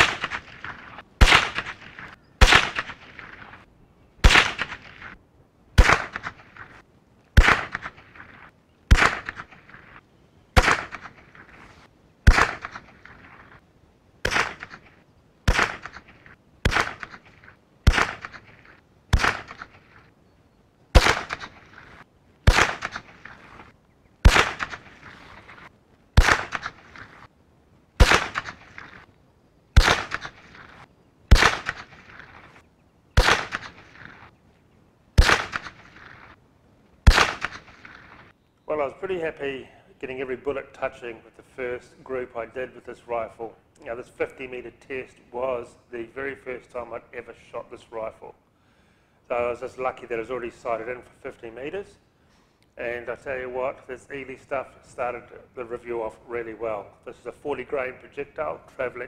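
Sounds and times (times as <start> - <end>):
rifle shots echoing: 0.0 - 5.2, 5.8 - 6.8, 7.4 - 10.0, 10.6 - 13.6, 14.2 - 20.1, 20.9 - 27.3, 28.0 - 29.1, 29.7 - 32.6, 33.2 - 34.4, 35.2 - 36.4, 37.0 - 38.3.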